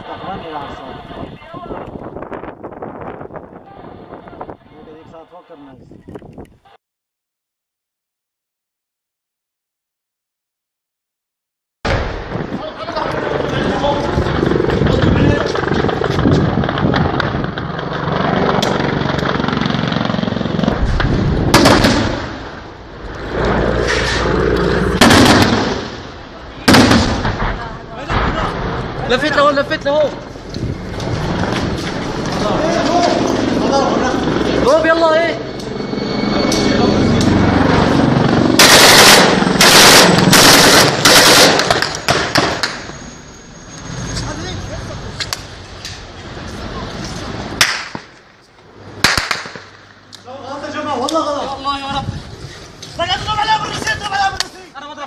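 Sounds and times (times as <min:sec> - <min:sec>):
helicopter engine and rotor drone: 0:00.0 - 0:02.0, 0:12.5 - 0:21.5, 0:29.0 - 0:46.0
gunfire bursts: 0:21.5 - 0:22.4, 0:25.0 - 0:26.0, 0:26.7 - 0:27.4, 0:38.6 - 0:42.8.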